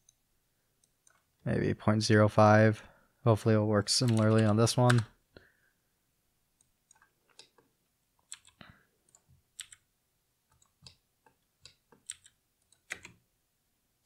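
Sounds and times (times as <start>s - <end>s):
keyboard key presses: 4.0s - 5.1s, 8.2s - 9.8s, 11.6s - 13.2s
computer mouse clicks: 6.6s - 9.8s, 10.5s - 13.2s.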